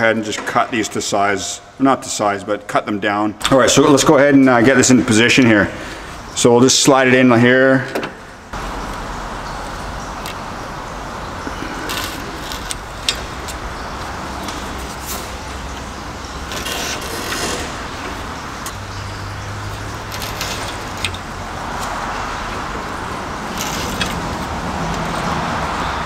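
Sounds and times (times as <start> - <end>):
shop background noise: 7.9 - 26.0.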